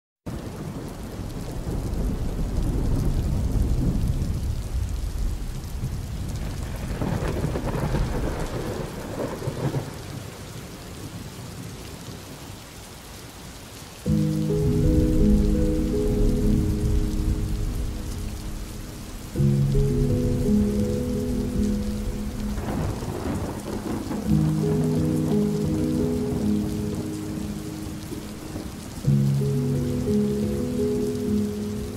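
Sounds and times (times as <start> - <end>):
steady rain: 0.3 - 31.9
thunder rumbling: 0.4 - 10.8, 14.1 - 31.9
music: 14.1 - 31.9.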